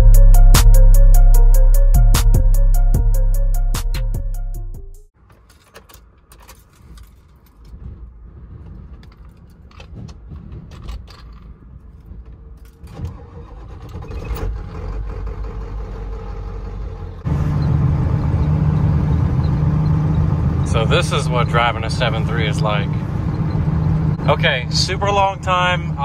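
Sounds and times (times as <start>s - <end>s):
road noise: 5.1s - 26.0s
keys jangling: 5.3s - 7.8s
diesel engine starting and running: 6.4s - 26.0s.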